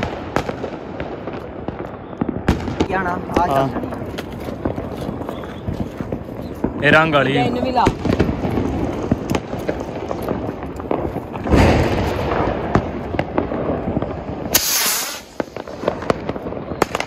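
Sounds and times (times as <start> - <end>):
firecrackers crackling and popping: 0.0 - 17.0
loud firecracker bang: 0.0 - 17.0
sharp hiss: 14.5 - 15.7.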